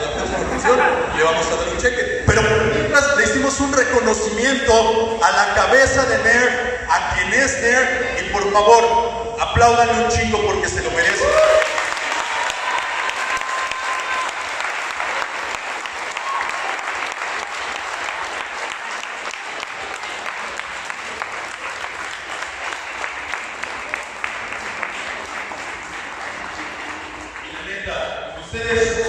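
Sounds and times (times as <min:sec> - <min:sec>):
audience applauding: 0:11.2 - 0:27.9.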